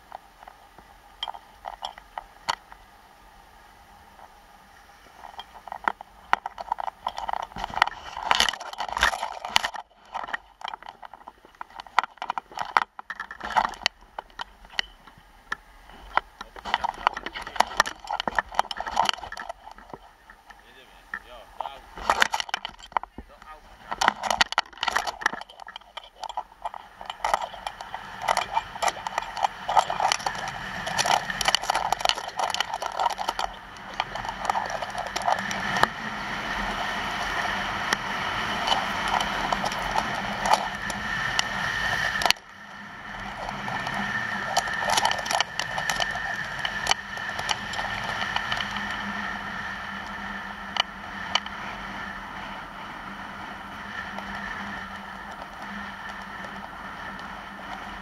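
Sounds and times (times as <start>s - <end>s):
skis scraping over hard snow: 15.8s - 52.3s.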